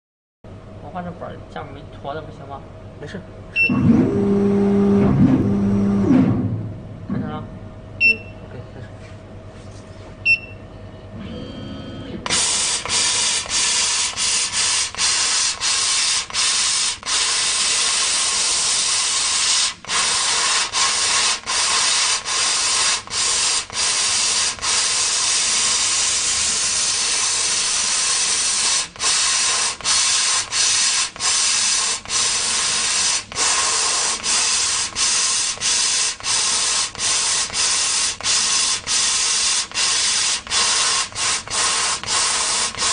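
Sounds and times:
short high beeps: 3.6s - 3.9s, 8.0s - 8.4s, 10.2s - 10.6s
laser cutter hissing: 12.2s - 42.9s.

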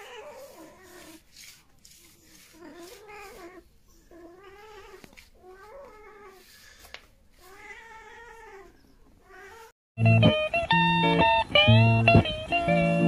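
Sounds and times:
cat meowing: 7.4s - 9.7s.

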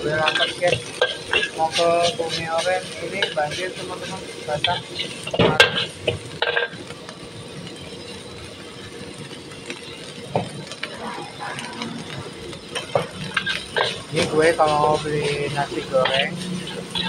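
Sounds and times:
metal spatula scraping wok: 0.0s - 6.9s, 9.8s - 17.0s.

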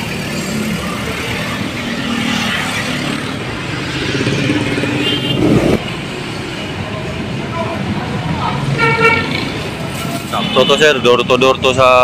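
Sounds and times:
street traffic: 0.0s - 12.0s.

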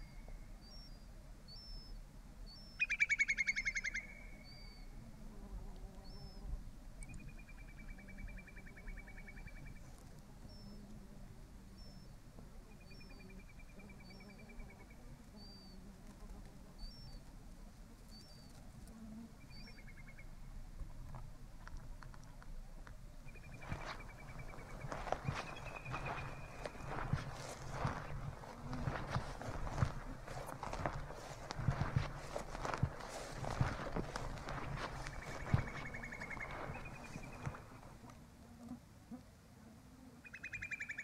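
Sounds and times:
small birds trilling: 23.3s - 37.9s
high bird chirps: 34.7s - 37.6s.

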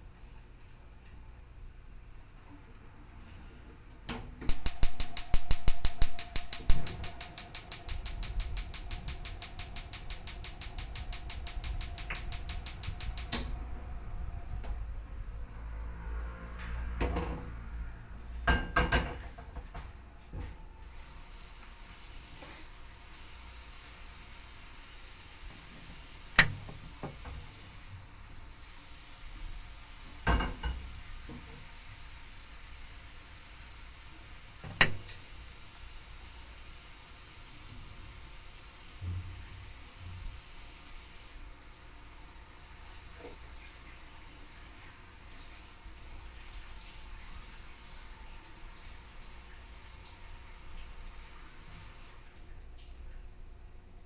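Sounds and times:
gas burner low rumble: 0.0s - 18.5s, 19.1s - 54.0s
gas hob igniter clicking: 4.1s - 13.6s, 26.3s - 27.2s, 34.7s - 35.3s.

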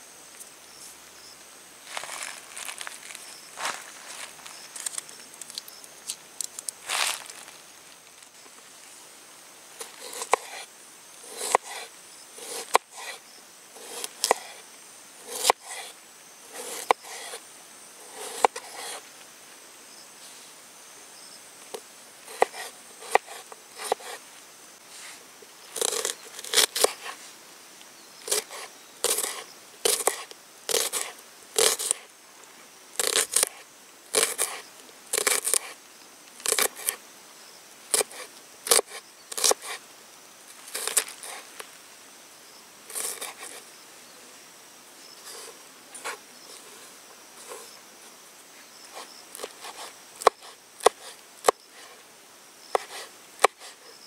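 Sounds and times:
knife cutting vegetables on board: 22.3s - 24.2s, 28.3s - 32.0s, 37.9s - 39.8s.

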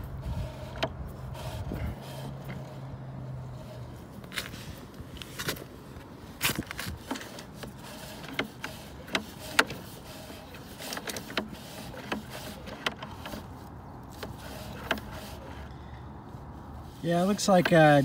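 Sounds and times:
cable clicks and knocks: 6.4s - 15.6s.

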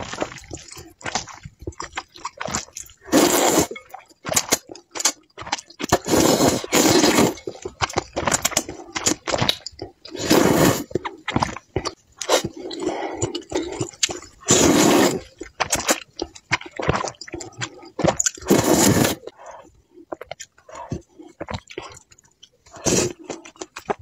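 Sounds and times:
wet chewing and smacking: 0.0s - 10.2s, 10.8s - 24.0s
person slurping noodles: 2.4s - 4.6s, 5.8s - 7.7s, 10.1s - 11.5s, 12.2s - 16.0s, 16.8s - 19.7s, 22.7s - 23.4s.

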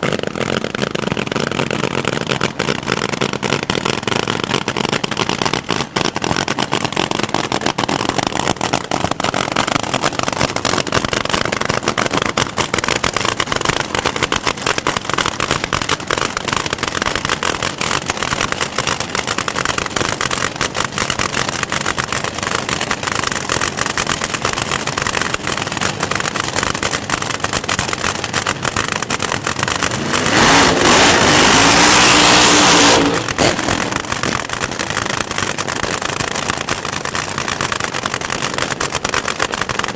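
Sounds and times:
dragster engine idling with crackle: 0.0s - 39.9s
engine revving to full throttle: 28.8s - 35.2s.

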